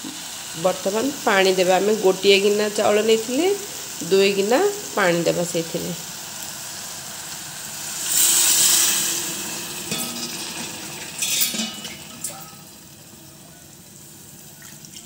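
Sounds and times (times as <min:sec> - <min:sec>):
faint simmer: 0:00.0 - 0:15.0
water hissing in a hot pot: 0:00.0 - 0:15.0
ladle clinking against pot: 0:09.9 - 0:12.7.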